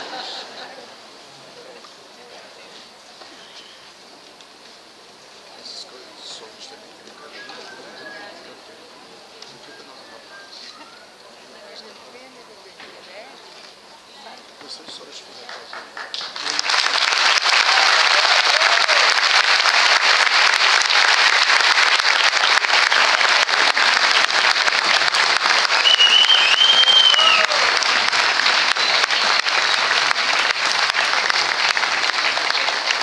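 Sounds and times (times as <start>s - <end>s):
audience applauding: 0.0s - 0.6s, 15.4s - 33.0s
high whistle: 25.8s - 27.6s.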